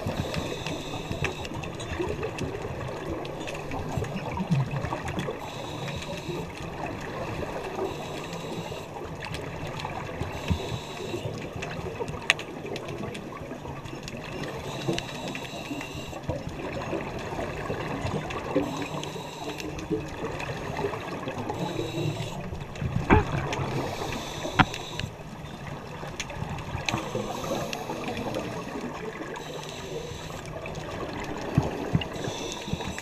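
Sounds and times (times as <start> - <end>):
regulator hissing: 0.0 - 1.6, 7.8 - 8.9, 18.6 - 19.7, 21.5 - 22.4, 23.8 - 25.2, 26.9 - 30.5, 32.1 - 33.0
bubbles gurgling: 1.6 - 5.4, 16.1 - 19.0, 19.7 - 33.0.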